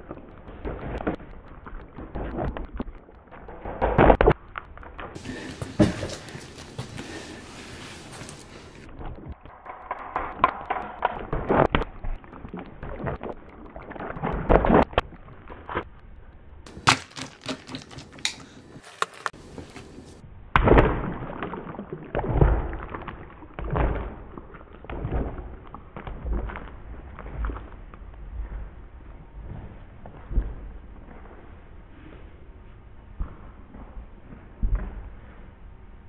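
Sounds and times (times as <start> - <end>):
sharp clicks: 0.0 - 5.2, 8.8 - 16.4
water balloon thudding on wooden floor: 16.7 - 18.2.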